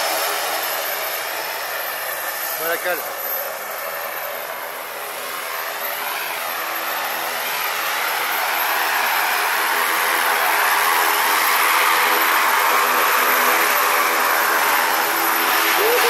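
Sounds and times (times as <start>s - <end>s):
propeller engine idling: 0.0s - 16.0s.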